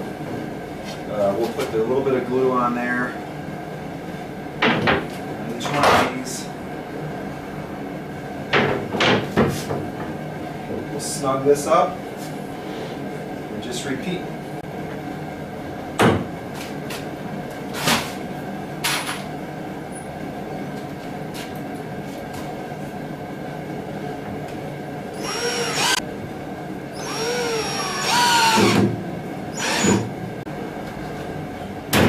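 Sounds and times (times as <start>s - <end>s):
cordless drill driving screws: 25.2s - 26.0s, 27.0s - 28.8s, 29.6s - 30.1s.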